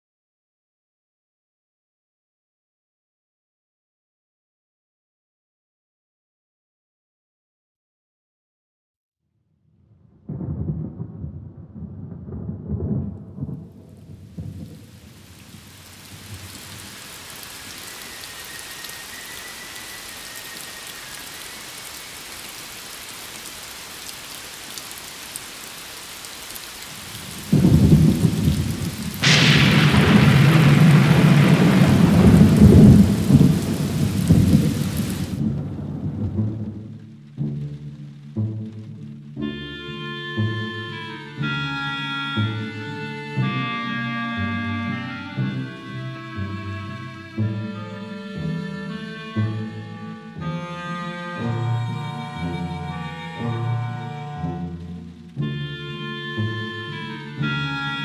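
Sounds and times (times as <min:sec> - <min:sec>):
thunderclap: 0:10.0 - 0:17.3, 0:26.9 - 0:37.1
thunder rumbling: 0:10.0 - 0:22.2, 0:26.7 - 0:37.2
heavy rain: 0:10.3 - 0:58.0.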